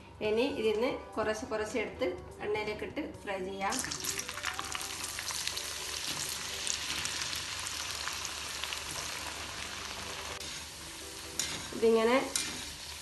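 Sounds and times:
potatoes deep-frying in oil: 3.7s - 13.0s.

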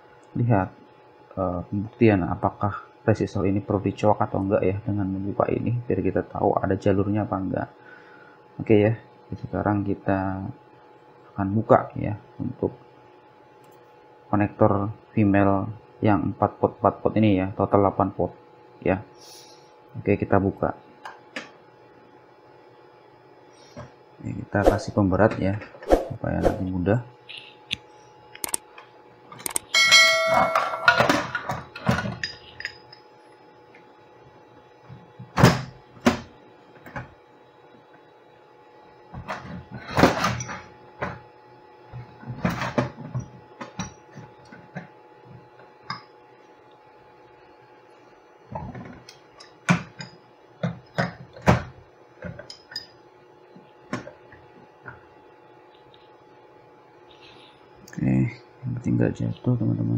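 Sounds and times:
metal wrench clanging: 29.7s - 31.1s.

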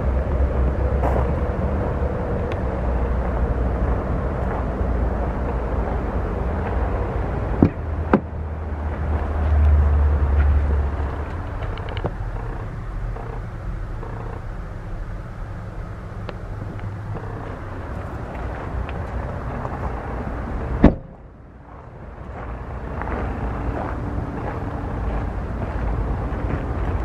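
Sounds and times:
steady low rumble: 0.0s - 27.0s
truck door shutting: 20.7s - 21.2s.

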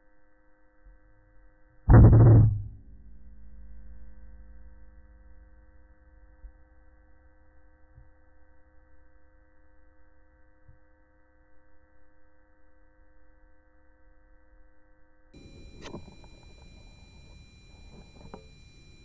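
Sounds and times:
electronic hum of held tones: 0.0s - 19.0s
low rumble: 1.9s - 6.8s.

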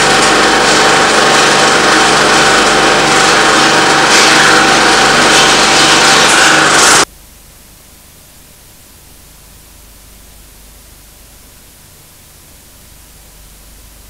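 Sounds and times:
faint low hum: 7.0s - 14.0s.

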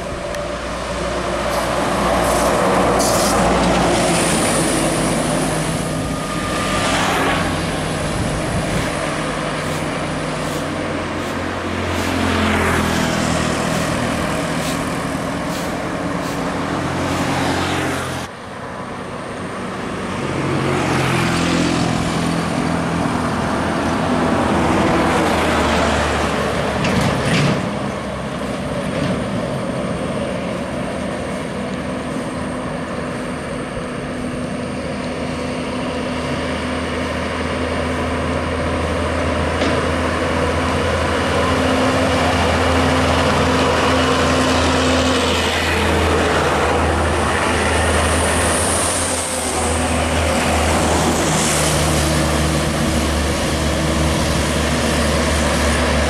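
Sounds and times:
heavy vehicles passing on highway: 0.0s - 56.0s
trucks grinding up road: 0.0s - 56.0s.

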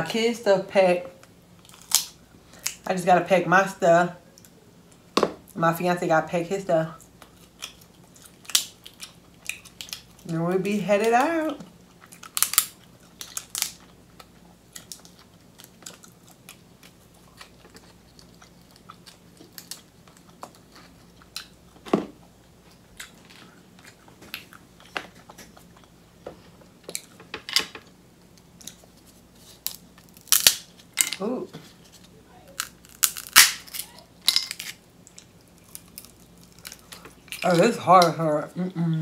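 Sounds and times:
crab shell cracking: 1.6s - 2.8s, 12.0s - 21.5s, 29.5s - 31.2s, 32.5s - 38.1s
close chewing: 7.0s - 10.3s, 11.6s - 21.8s.

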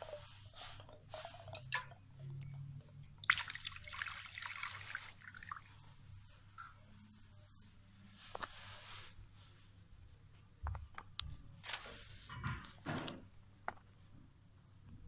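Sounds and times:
liquid splashing onto stone: 3.2s - 5.6s.

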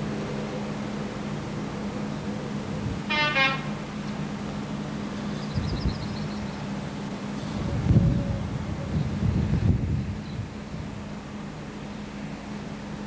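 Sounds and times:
train horn blast: 3.0s - 3.9s.

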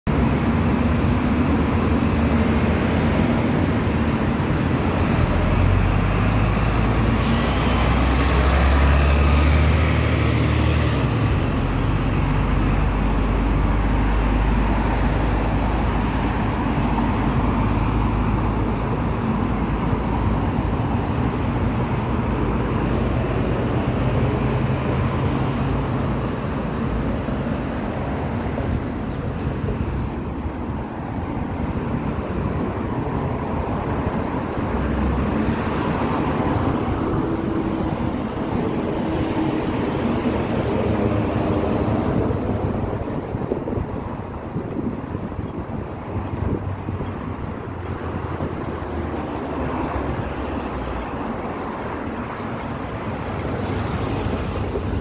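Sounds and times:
heavy vehicle engine: 0.1s - 55.0s
road traffic passing: 0.1s - 55.0s.

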